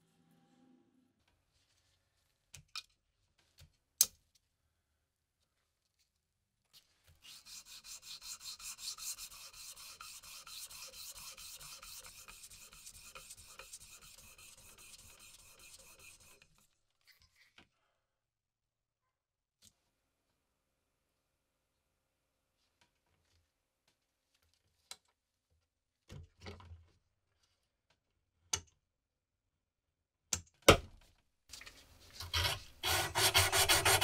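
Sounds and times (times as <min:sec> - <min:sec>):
metal scraping on wet sandpaper: 0:07.2 - 0:16.6, 0:32.0 - 0:34.0.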